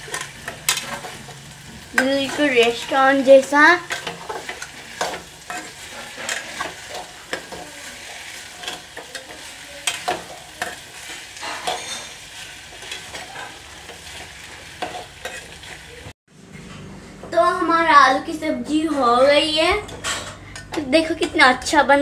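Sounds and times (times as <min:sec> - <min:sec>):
potatoes sizzling in oil: 0:00.0 - 0:16.1
spoon scraping metal pot: 0:03.9 - 0:07.7, 0:08.5 - 0:13.6.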